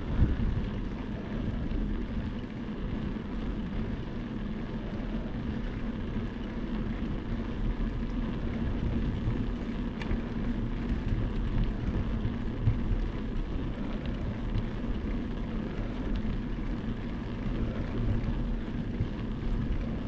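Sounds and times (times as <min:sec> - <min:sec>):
wind on microphone: 0:00.0 - 0:02.3
bicycle tyres on asphalt: 0:00.0 - 0:20.0
low hum: 0:00.0 - 0:20.0.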